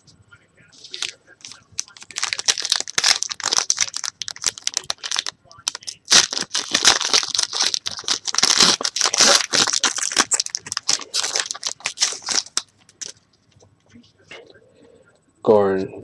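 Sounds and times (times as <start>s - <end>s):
foil wrapper crinkling and tearing: 0.8s - 13.2s.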